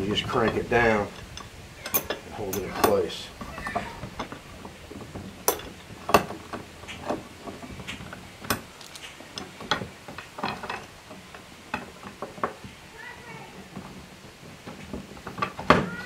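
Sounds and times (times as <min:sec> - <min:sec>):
pipe clamp clicks and knocks: 0:04.0 - 0:12.6.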